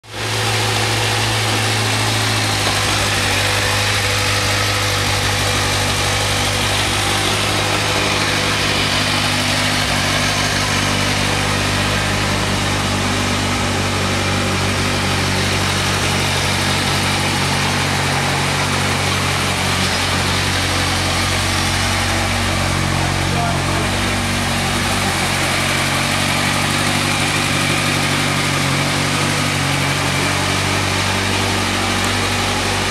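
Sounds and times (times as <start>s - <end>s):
motorcycle engine idling: 0.1s - 32.9s.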